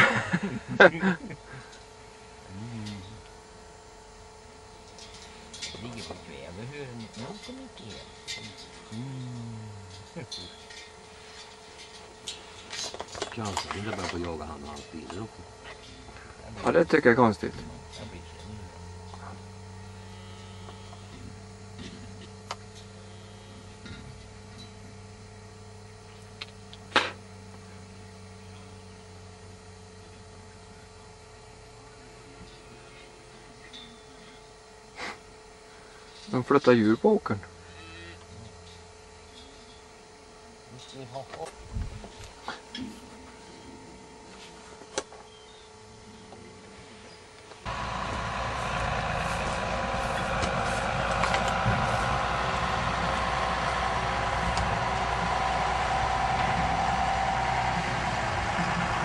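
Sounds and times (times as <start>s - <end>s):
low hum: 47.6s - 59.0s
vehicle engine deep rumble: 47.6s - 59.0s.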